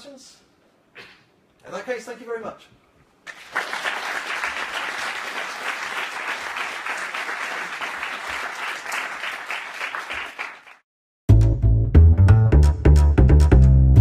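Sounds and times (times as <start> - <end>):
audience applauding: 3.3 - 10.8.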